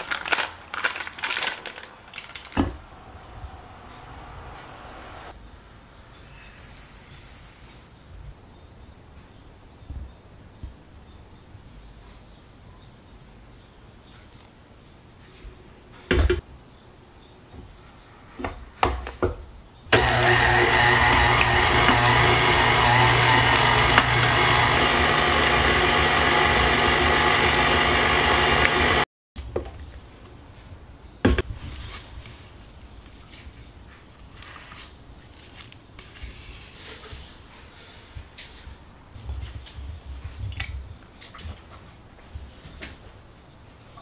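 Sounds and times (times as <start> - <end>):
electric hand mixer running: 20.0 - 29.1.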